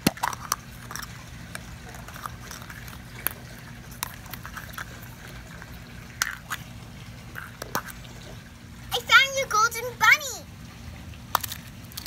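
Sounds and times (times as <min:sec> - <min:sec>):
plastic eggs clicking: 0:00.0 - 0:05.6, 0:07.3 - 0:08.0, 0:11.3 - 0:12.0
low steady hum: 0:00.0 - 0:12.0.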